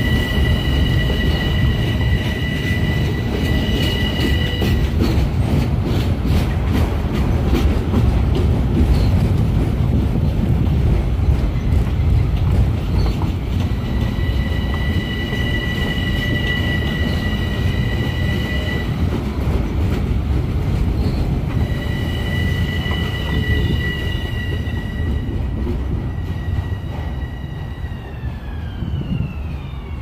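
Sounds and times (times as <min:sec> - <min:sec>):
high steady squeal: 0:00.0 - 0:05.0, 0:13.6 - 0:19.1, 0:21.0 - 0:30.0
train wheels rumbling on rails: 0:00.0 - 0:30.0.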